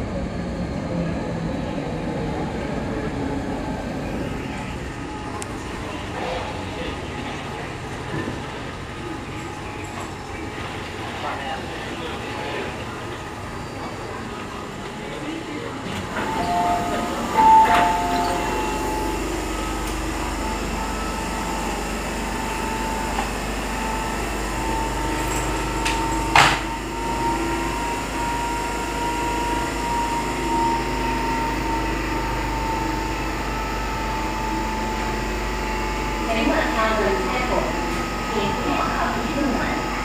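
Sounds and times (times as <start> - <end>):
train equipment high whine: 0.0 - 40.0
two-tone squeal: 16.2 - 21.5.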